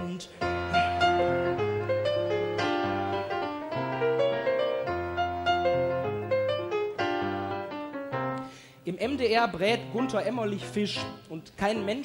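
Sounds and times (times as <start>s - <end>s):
person singing: 0.0s - 1.6s
solo piano: 0.3s - 8.5s.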